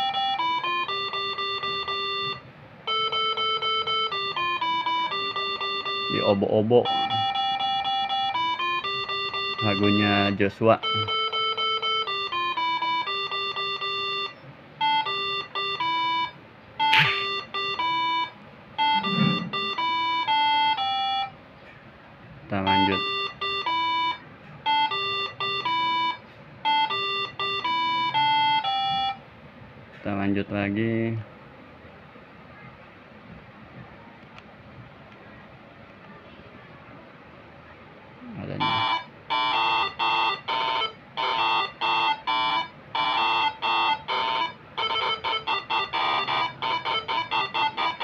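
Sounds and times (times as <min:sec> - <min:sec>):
air horn melody: 0:18.8 - 0:20.0, 0:38.6 - 0:48.0.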